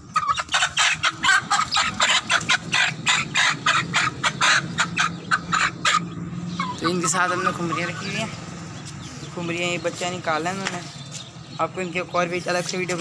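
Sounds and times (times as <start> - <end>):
chicken squawking: 0.0 - 8.4.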